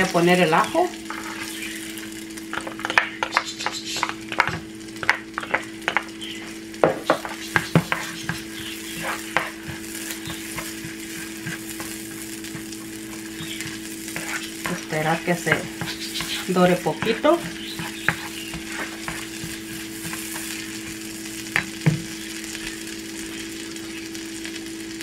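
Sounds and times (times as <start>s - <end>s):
garlic sizzling in oil: 0.0s - 25.0s
steady low hum: 0.0s - 25.0s
spatula scraping a pan: 1.0s - 1.8s, 2.8s - 21.1s.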